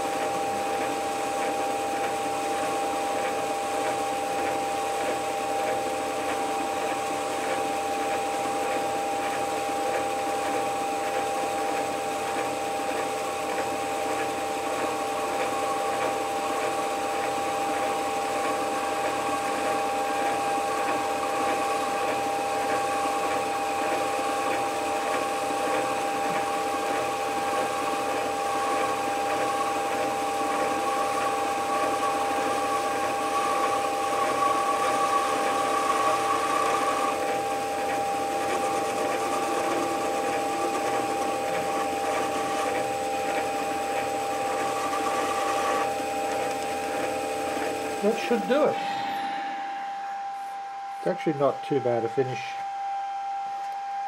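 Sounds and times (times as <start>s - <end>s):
metal lathe humming: 0.0s - 53.2s.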